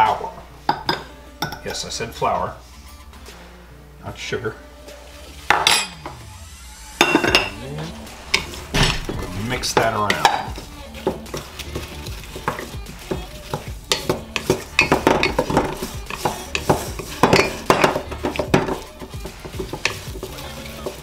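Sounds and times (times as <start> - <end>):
wooden spatula scraping metal bowl: 7.0 - 21.0.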